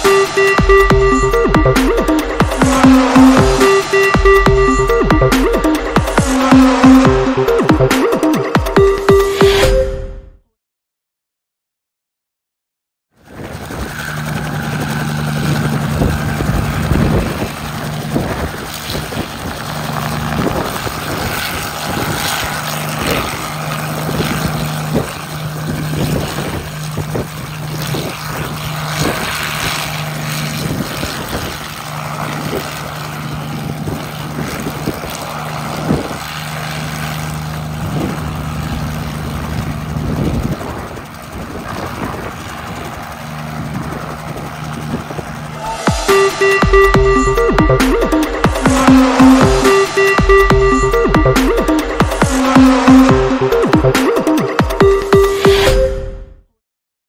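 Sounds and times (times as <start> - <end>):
helicopter engine and rotors: 0.0 - 9.8, 13.1 - 56.3
rotor downwash buffeting microphone: 13.2 - 55.7.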